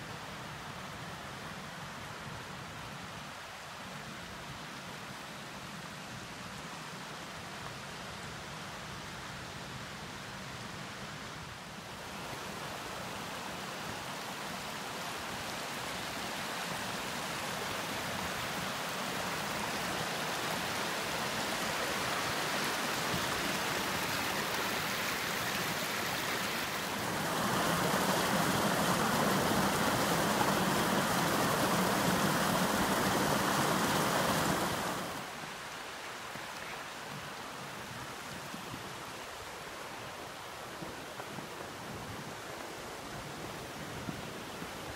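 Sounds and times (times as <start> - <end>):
mountain brook rushing: 0.0 - 44.9.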